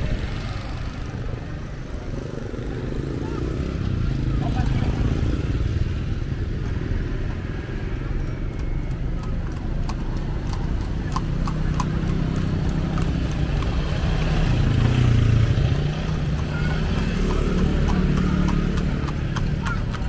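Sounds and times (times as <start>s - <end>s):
vehicle engines passing: 0.0s - 20.0s
faint voices: 8.8s - 20.0s.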